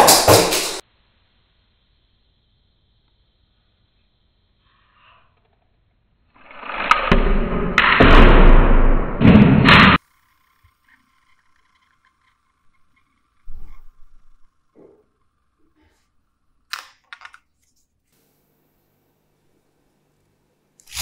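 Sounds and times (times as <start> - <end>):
faint steady whir: 0.8 - 6.3
plastic gear whirring: 6.4 - 7.1, 10.0 - 15.6, 20.8 - 21.0.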